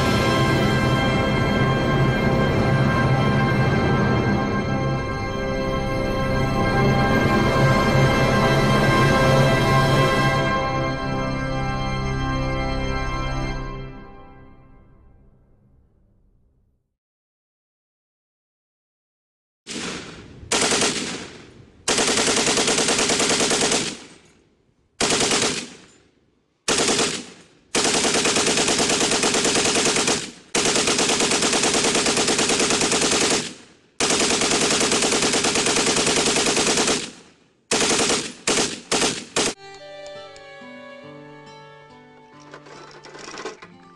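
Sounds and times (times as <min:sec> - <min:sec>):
gunfire echo: 0:19.7 - 0:24.4, 0:25.0 - 0:39.6
machine gun automatic fire: 0:19.7 - 0:24.4, 0:25.0 - 0:26.0, 0:26.7 - 0:39.6.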